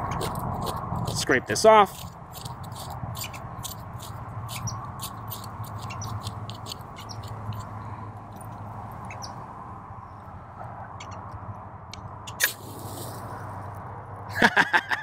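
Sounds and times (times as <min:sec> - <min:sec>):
knife scraping seed head: 0:00.0 - 0:07.8.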